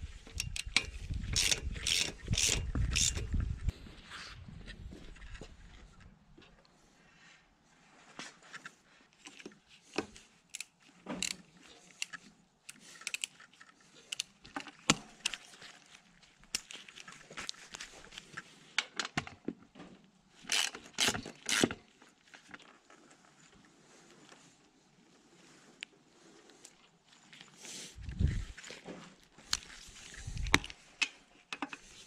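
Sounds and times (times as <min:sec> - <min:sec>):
metallic clicks of hand tools: 0:00.3 - 0:03.3, 0:10.0 - 0:13.4, 0:20.5 - 0:21.8.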